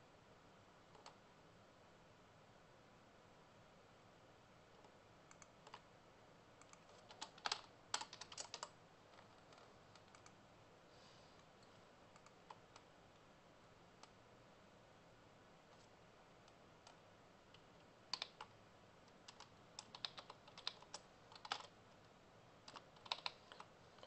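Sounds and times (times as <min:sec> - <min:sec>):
computer keyboard typing: 0:00.9 - 0:01.2, 0:04.7 - 0:05.9, 0:06.6 - 0:10.4, 0:12.1 - 0:12.9, 0:16.4 - 0:21.8, 0:22.6 - 0:24.0.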